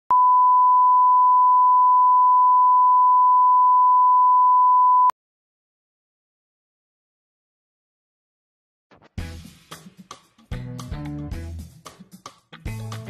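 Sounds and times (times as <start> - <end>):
steady sine test tone: 0.1 - 5.1.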